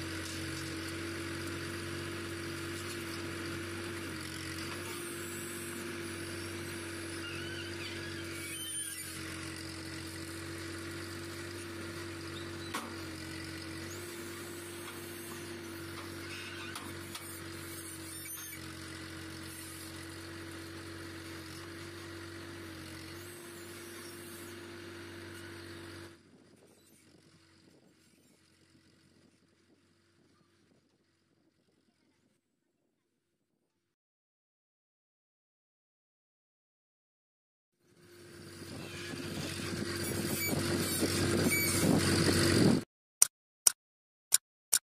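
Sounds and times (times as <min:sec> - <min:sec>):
tractor engine droning: 0:37.9 - 0:42.8.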